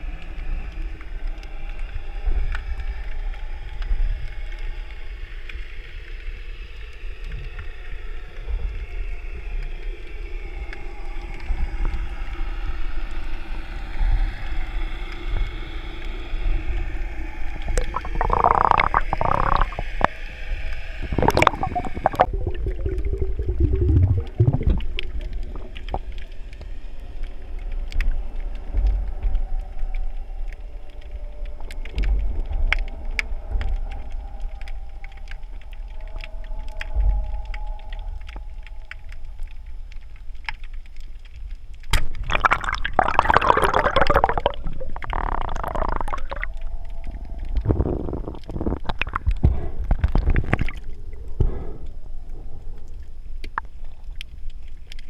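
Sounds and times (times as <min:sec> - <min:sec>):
faint droning tones: 0:00.0 - 0:55.0
underwater moving water rumble: 0:00.0 - 0:55.0
water gurgling: 0:17.5 - 0:26.8, 0:41.9 - 0:51.3.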